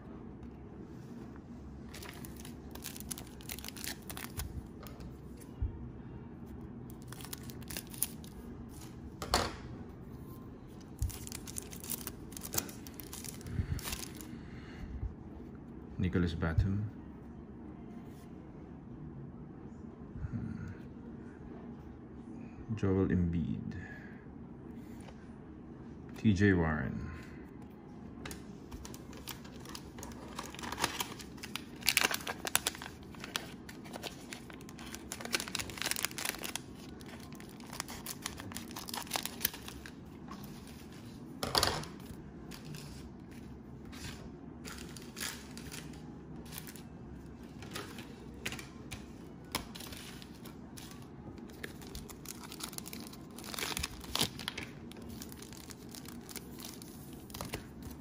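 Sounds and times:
cellophane wrapper crinkling and tearing: 0:01.9 - 0:04.6, 0:06.9 - 0:08.4, 0:10.9 - 0:14.3, 0:28.8 - 0:40.7, 0:49.4 - 0:58.0.

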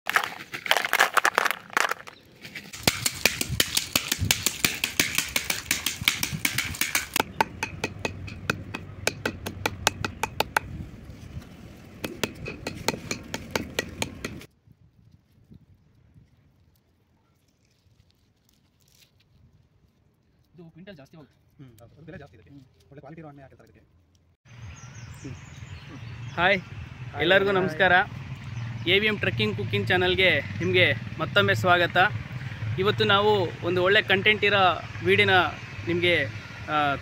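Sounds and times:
wooden stick knocking on pods: 0:00.1 - 0:10.8, 0:12.0 - 0:14.5.

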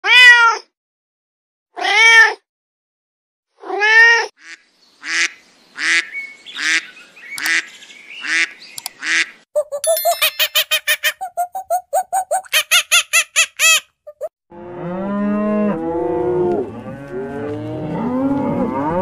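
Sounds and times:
cat meowing: 0:00.0 - 0:00.6
duck quacking: 0:04.4 - 0:09.4.

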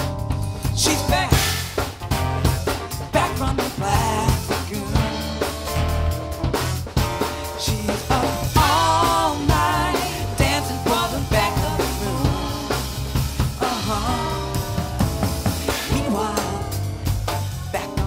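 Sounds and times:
drum kit beat: 0:00.0 - 0:18.0
person singing: 0:00.6 - 0:01.6, 0:03.1 - 0:05.7, 0:07.2 - 0:13.0, 0:13.6 - 0:18.0.

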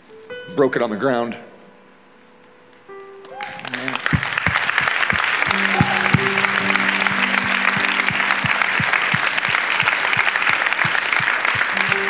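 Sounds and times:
congregation applauding: 0:03.2 - 0:12.0
music with low beat: 0:04.2 - 0:09.8.

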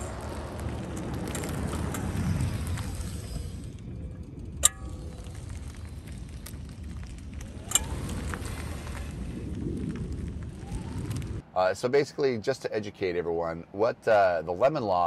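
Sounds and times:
car rolling over asphalt: 0:00.0 - 0:11.4.

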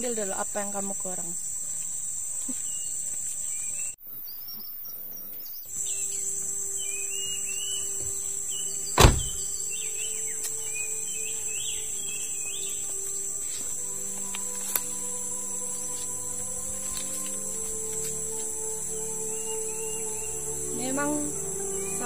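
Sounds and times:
birds chirping: 0:00.0 - 0:22.0
high-pitched insect drone: 0:00.0 - 0:22.0
car door shutting: 0:08.9 - 0:09.5.

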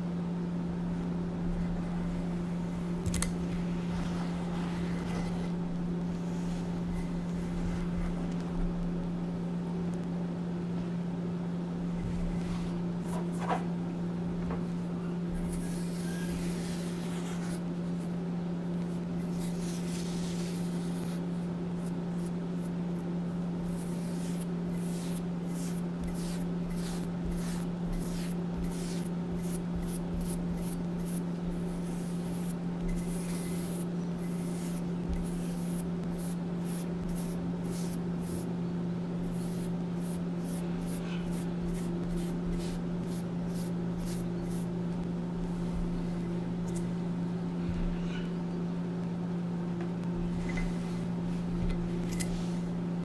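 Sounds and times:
steady low hum: 0:00.0 - 0:53.0
paintbrush swishing on stone: 0:23.6 - 0:38.5, 0:39.2 - 0:44.7.

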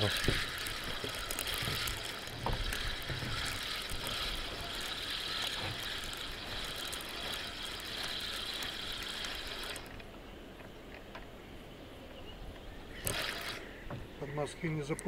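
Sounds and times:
fishing reel clicking: 0:00.0 - 0:10.1, 0:13.0 - 0:13.7.

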